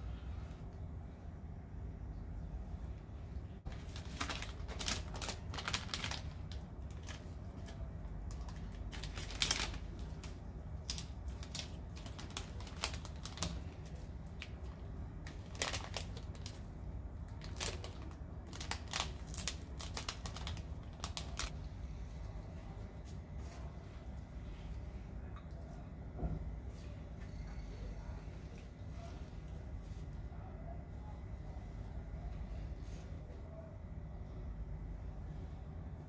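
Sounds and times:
steady low hum: 0.0 - 36.0
cellophane bags crinkling: 3.7 - 16.7, 17.3 - 21.6.

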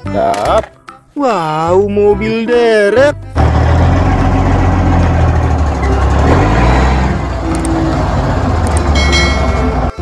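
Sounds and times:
diesel engine running: 3.2 - 10.0.

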